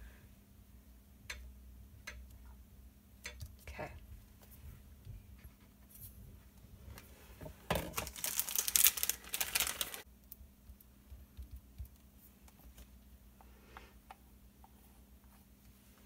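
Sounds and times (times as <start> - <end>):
paper sheets rustling: 7.9 - 10.0.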